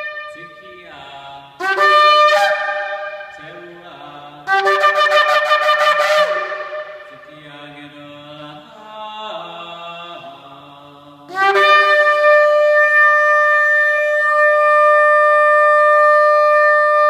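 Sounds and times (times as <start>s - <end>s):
shofar blasts: 0.0s - 1.0s, 1.6s - 7.4s, 11.3s - 17.0s.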